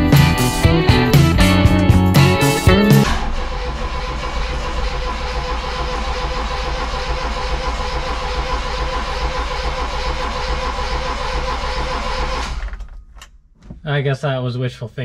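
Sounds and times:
starter motor whine: 0:02.4 - 0:13.0
engine cranking on starter: 0:02.4 - 0:13.4.

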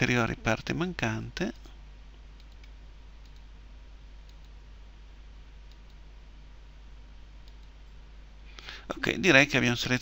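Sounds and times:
low hum and hiss: 0:00.0 - 0:10.0
computer mouse clicks: 0:02.4 - 0:03.5, 0:04.2 - 0:04.6, 0:05.7 - 0:06.0, 0:07.4 - 0:07.8.

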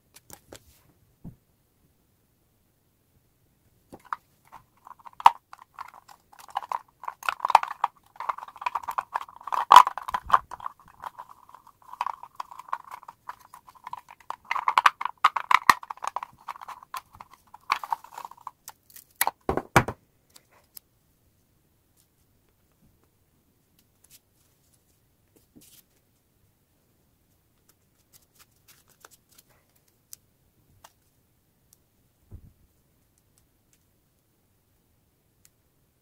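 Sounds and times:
tape crackling off a roll: 0:04.0 - 0:19.5.

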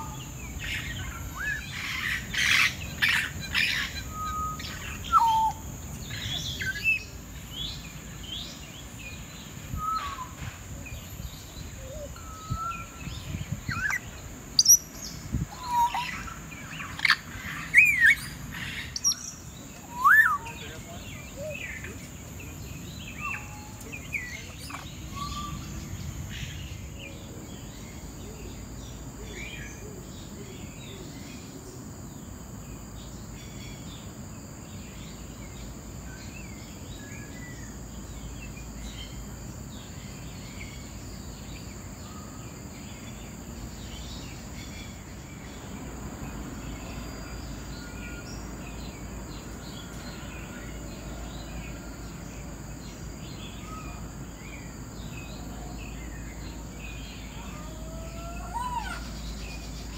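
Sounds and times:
birds chirping: 0:00.0 - 0:31.4
low background noise: 0:00.0 - 0:59.9.

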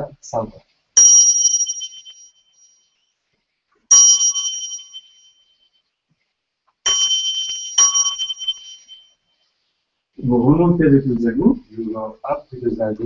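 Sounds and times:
small hand bell ringing: 0:01.0 - 0:03.0, 0:03.9 - 0:05.7, 0:06.9 - 0:09.2.

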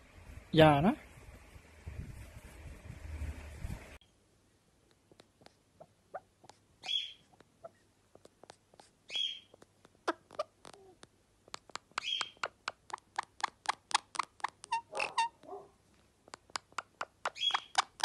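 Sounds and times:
parakeet raspy chirps: 0:05.2 - 0:15.5, 0:16.2 - 0:18.0
sharp clicks: 0:09.5 - 0:14.8, 0:16.3 - 0:18.0.

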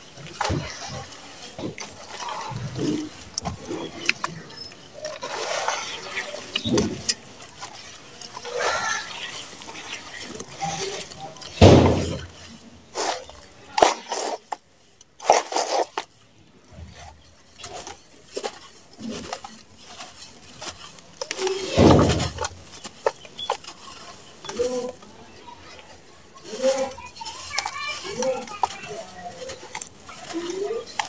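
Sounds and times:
dry gritty crumbling: 0:00.0 - 0:31.0
scattered crunches: 0:00.0 - 0:31.0
wet squelching in slurry: 0:00.0 - 0:31.0.

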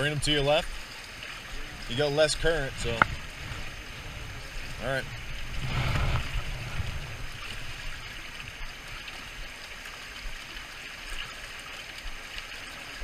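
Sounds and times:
fast river current rushing: 0:00.0 - 0:13.0
low rumble: 0:01.6 - 0:08.8.

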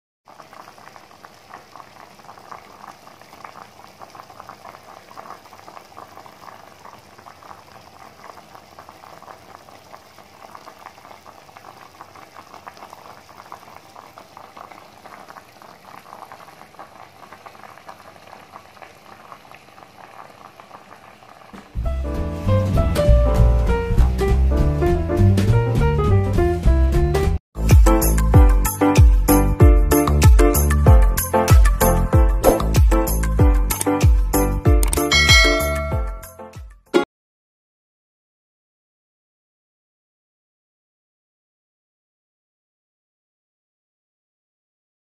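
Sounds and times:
broth bubbling in a pot: 0:00.3 - 0:21.9
loud music: 0:27.6 - 0:36.4.

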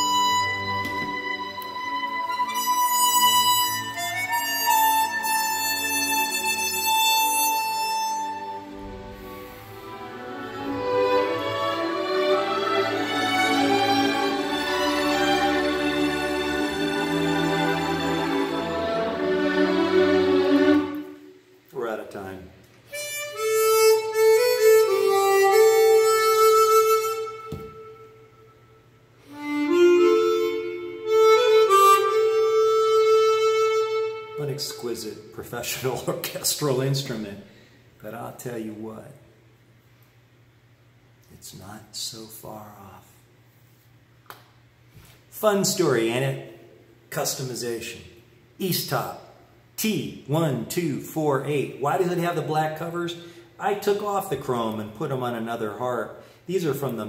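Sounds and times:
harmonica playing slow melody: 0:00.0 - 0:21.4, 0:22.9 - 0:34.9.

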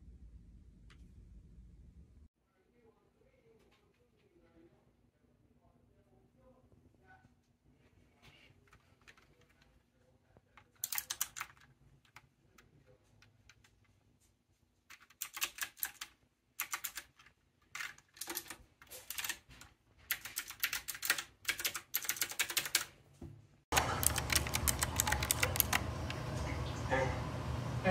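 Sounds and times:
mechanical keyboard clicking: 0:10.6 - 0:12.2, 0:14.9 - 0:19.5, 0:20.1 - 0:22.9, 0:23.7 - 0:26.2.

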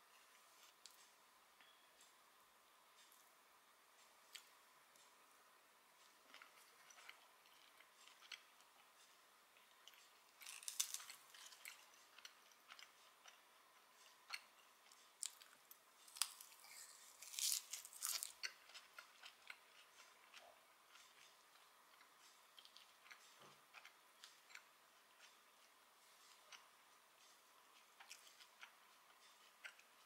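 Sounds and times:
chewing crunchy salad leaves: 0:09.8 - 0:13.4, 0:14.0 - 0:26.4.

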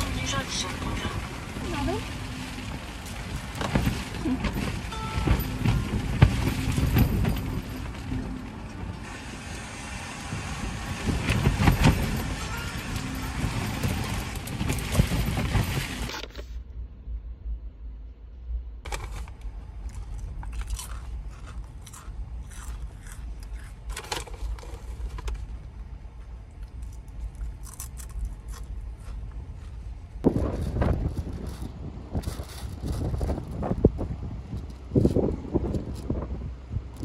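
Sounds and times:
crunching chips: 0:18.9 - 0:25.2, 0:26.5 - 0:29.7.

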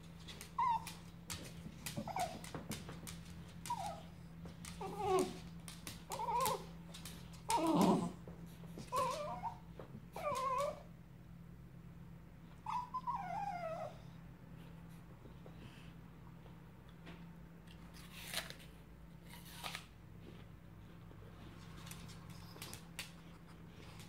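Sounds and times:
dog whining: 0:00.3 - 0:02.6, 0:03.6 - 0:08.2, 0:08.8 - 0:10.9, 0:12.6 - 0:14.2.

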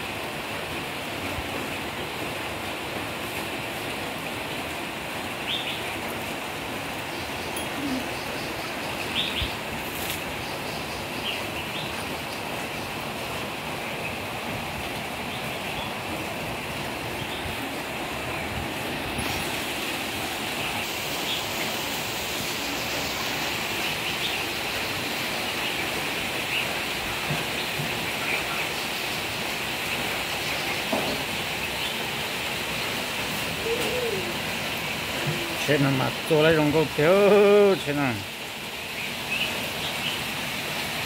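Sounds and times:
steady rushing noise: 0:13.4 - 0:30.0.

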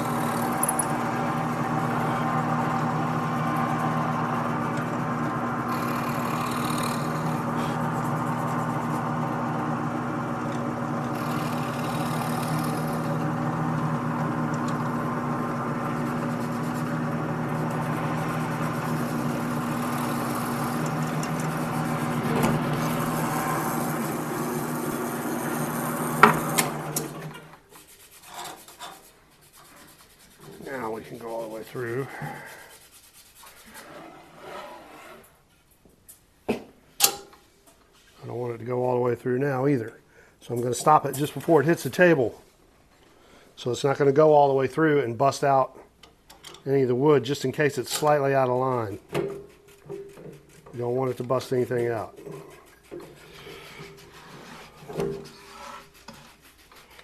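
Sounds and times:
drill press boring wood: 0:00.0 - 0:27.6.

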